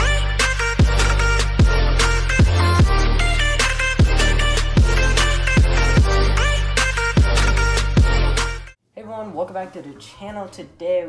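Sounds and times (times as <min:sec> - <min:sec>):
music with heavy bass line: 0:00.0 - 0:08.8.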